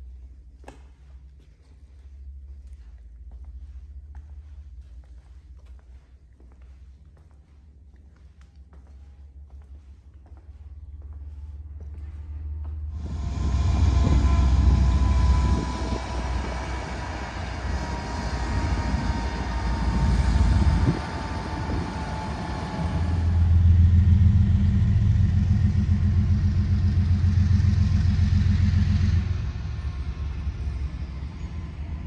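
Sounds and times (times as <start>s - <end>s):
low pulsing rumble: 0.0s - 32.0s
freight train rumbling on rails: 10.4s - 32.0s.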